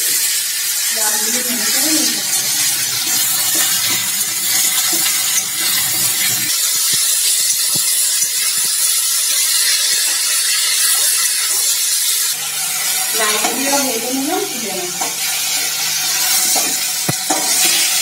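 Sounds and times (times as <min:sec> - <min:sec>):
vegetables sizzling in hot oil: 0:00.0 - 0:18.0
metal spatula scraping a pan: 0:01.5 - 0:13.8, 0:15.0 - 0:18.0.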